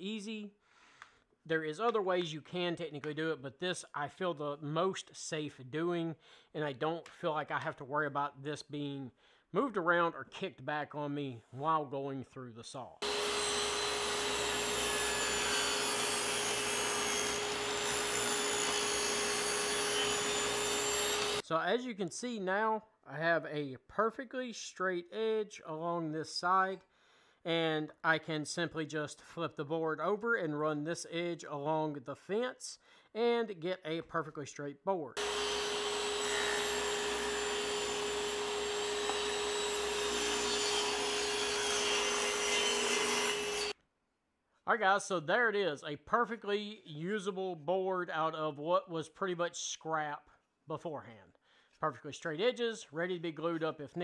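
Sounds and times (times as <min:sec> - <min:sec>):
table saw ripping wood: 0:13.0 - 0:21.4, 0:35.2 - 0:43.8.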